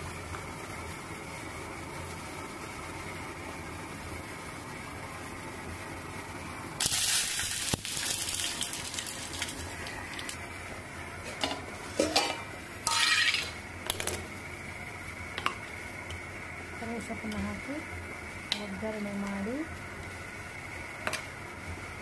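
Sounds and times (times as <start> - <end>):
leaves sizzling in hot oil: 6.3 - 10.8, 11.7 - 13.8
steel dishes and spoon clinking: 11.4 - 13.6.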